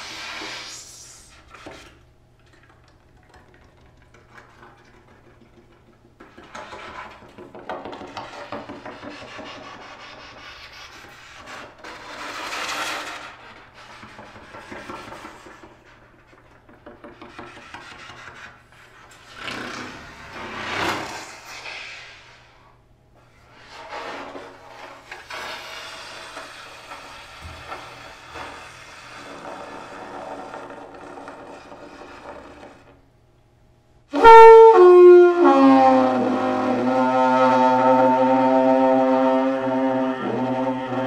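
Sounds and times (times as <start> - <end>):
breath blown through trombone tubing: 34.1 - 41.0.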